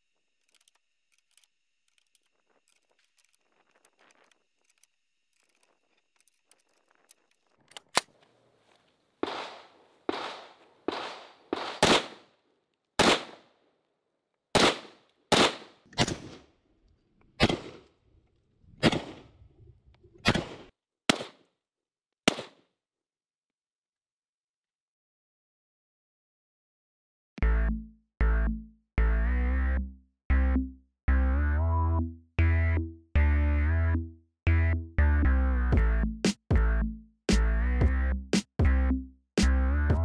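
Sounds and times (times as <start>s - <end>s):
metallic clicks of rifle action: 0.4s - 8.3s
rifle shots echoing: 9.2s - 12.4s, 13.0s - 13.6s, 14.5s - 16.5s, 17.4s - 17.9s, 18.8s - 19.4s, 22.3s - 22.6s.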